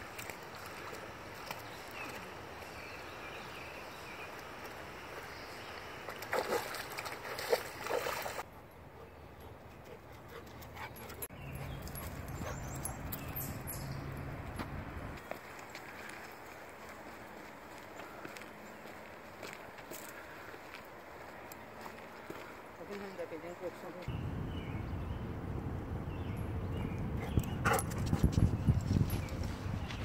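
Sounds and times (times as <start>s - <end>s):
dog splashing in water: 6.1s - 8.4s.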